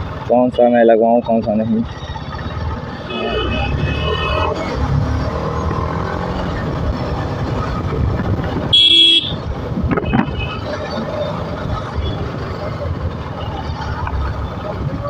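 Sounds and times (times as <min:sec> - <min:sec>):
wind and road noise: 0:00.0 - 0:15.0
motorcycle engine: 0:01.8 - 0:15.0
horn honking: 0:03.0 - 0:04.6, 0:08.7 - 0:09.4.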